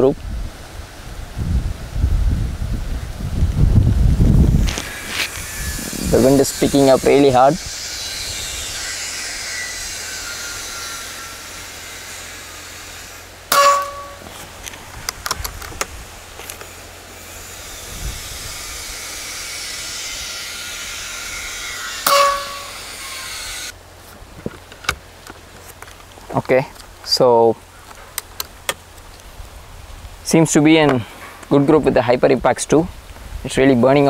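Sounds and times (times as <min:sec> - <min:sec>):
wind noise: 0:00.0 - 0:11.0, 0:13.6 - 0:16.5, 0:17.3 - 0:23.6, 0:28.4 - 0:34.0.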